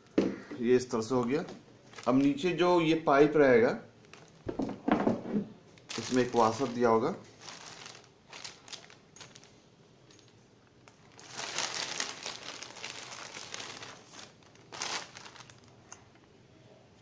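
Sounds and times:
plastic bag crinkling: 1.1s - 3.0s, 4.0s - 4.7s, 5.7s - 16.1s.

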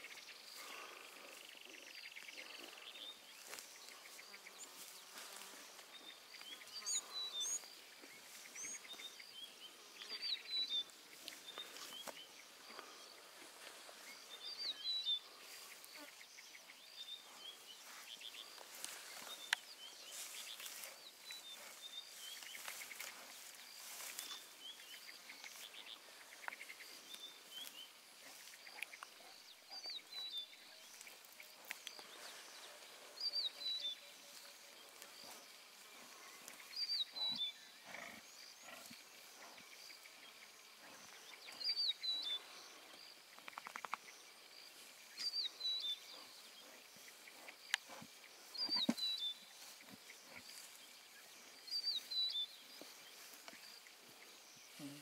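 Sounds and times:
rustling in grass: 0.0s - 29.2s, 30.8s - 37.3s, 38.7s - 55.0s
lion cubs chewing: 17.8s - 41.7s, 44.8s - 54.5s.

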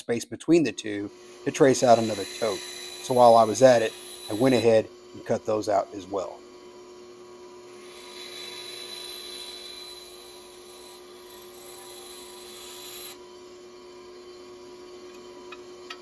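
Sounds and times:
bandsaw motor hum: 0.8s - 16.0s
bandsaw blade cutting wood: 1.5s - 4.8s, 7.7s - 13.2s.

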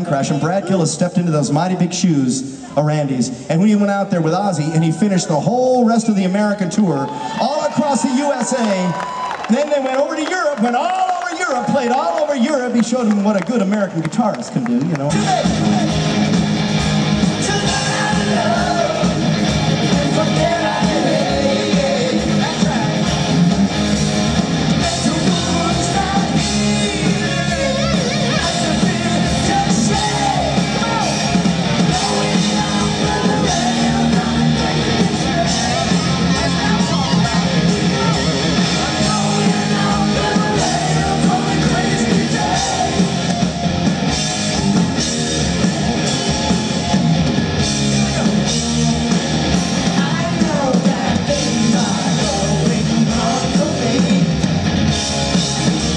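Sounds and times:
bass guitar: 15.0s - 55.9s
distorted electric guitars: 15.0s - 55.9s
drum kit: 15.0s - 55.9s
person singing: 17.4s - 23.4s, 24.8s - 43.4s, 49.8s - 54.4s.

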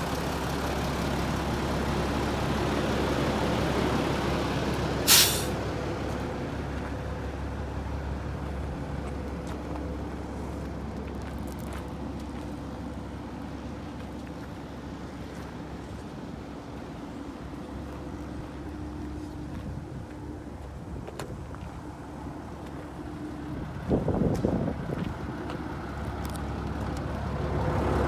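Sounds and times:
bus diesel engine idling: 0.0s - 28.0s
air brake hiss: 5.0s - 5.6s.

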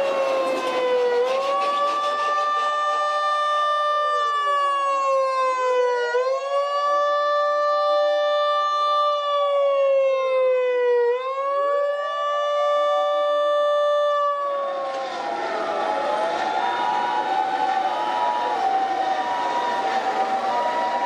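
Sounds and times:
emergency vehicle sirens wailing: 0.0s - 21.0s.

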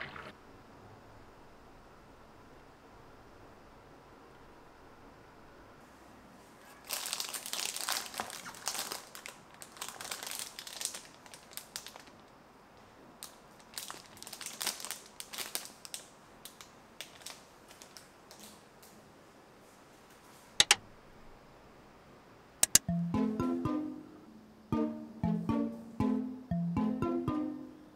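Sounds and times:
plastic packet crinkling: 6.8s - 12.3s, 13.2s - 18.6s
sharp clicks: 20.6s - 20.8s, 22.6s - 22.9s
plucked-string music: 22.7s - 27.9s.

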